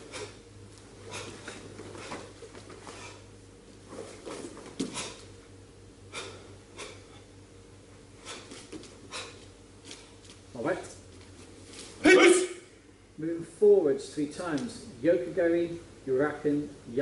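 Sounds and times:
sharp exhaled breaths: 0.0 - 3.4, 4.8 - 5.4, 6.1 - 7.4, 8.2 - 10.2
low steady hum: 0.0 - 17.0.

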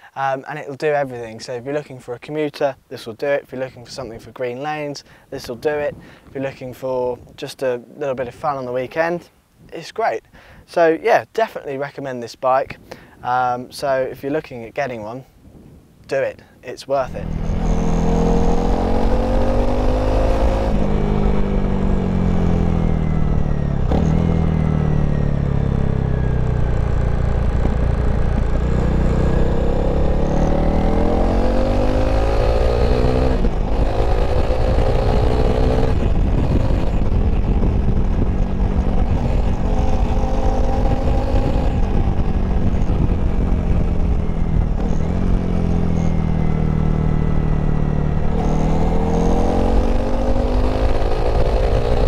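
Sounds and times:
motorcycle engine revving: 17.1 - 52.0.

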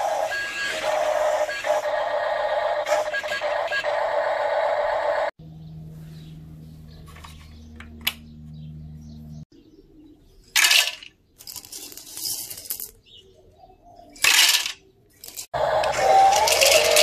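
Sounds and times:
plastic drum rattling: 16.0 - 17.0.

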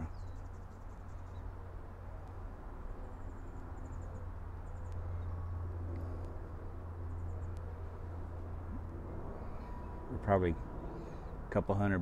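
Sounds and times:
low droning hum: 0.0 - 12.0
faint click: 4.8 - 5.1.

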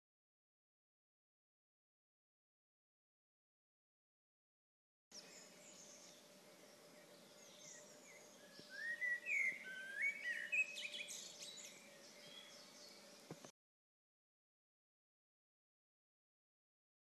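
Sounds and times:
birds chirping: 5.1 - 13.5
faint steady hum and hiss: 5.2 - 13.5.

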